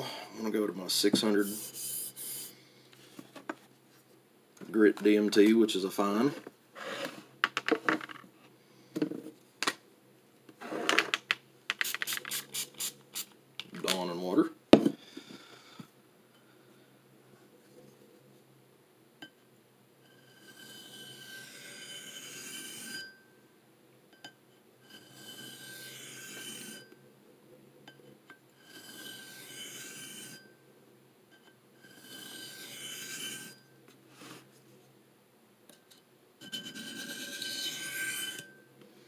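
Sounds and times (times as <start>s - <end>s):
knife scraping on sharpening plate: 20.1s - 23.2s, 28.6s - 30.5s, 31.8s - 33.6s, 36.4s - 38.6s.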